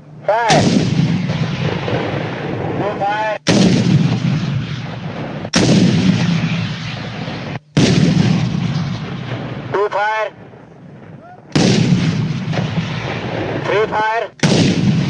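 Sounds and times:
weapon blasts: 0.5s - 2.8s, 3.4s - 9.5s, 11.5s - 13.6s, 14.4s - 15.0s
rumbling echo: 0.5s - 15.0s.

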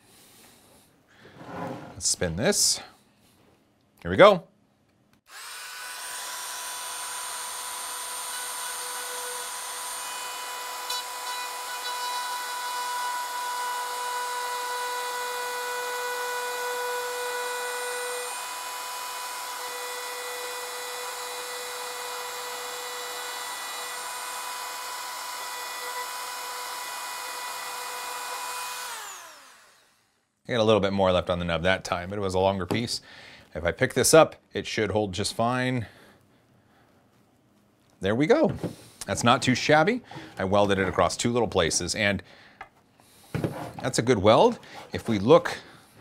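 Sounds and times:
rotary tool motor whine: 5.3s - 30.2s.

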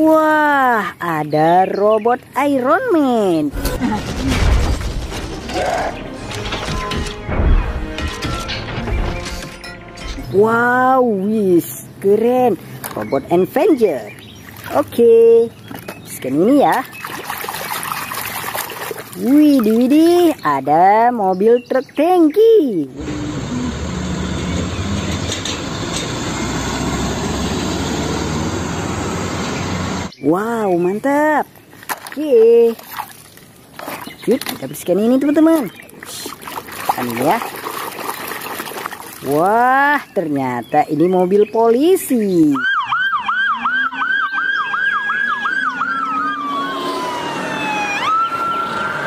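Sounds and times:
diesel truck engine running: 22.9s - 30.1s
police siren yelping: 42.5s - 49.0s
faint second siren yelping: 42.6s - 49.0s.

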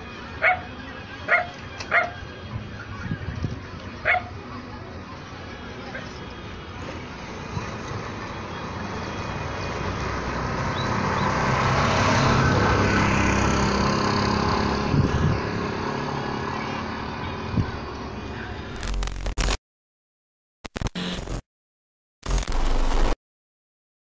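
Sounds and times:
vehicle passing: 0.0s - 18.7s.

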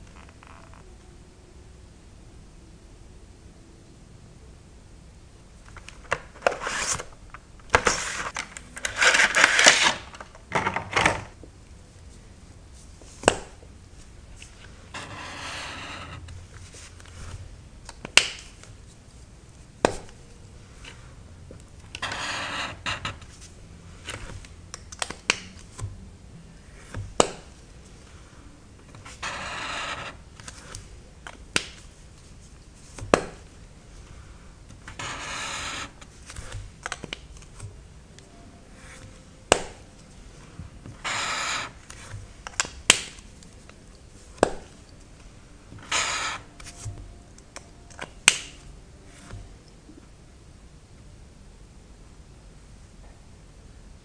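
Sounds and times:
highlighter scratching on paper: 14.9s - 17.4s, 22.0s - 23.4s, 29.0s - 30.7s, 34.9s - 36.6s, 40.9s - 42.2s, 45.8s - 47.0s.

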